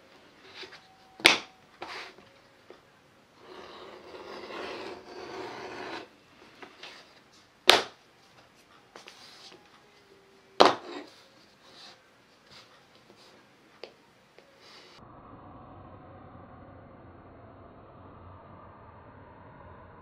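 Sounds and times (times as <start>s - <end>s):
tool scratching along leather: 3.4s - 6.1s.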